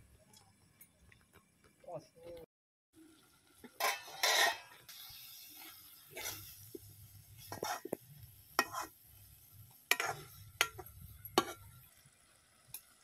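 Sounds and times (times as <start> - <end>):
metal ladle scraping a pan: 3.8 - 9.0, 9.9 - 11.9.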